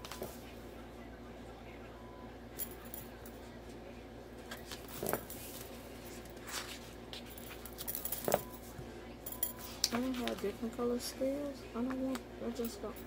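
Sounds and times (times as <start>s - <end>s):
paper sheets rustling: 4.5s - 7.8s.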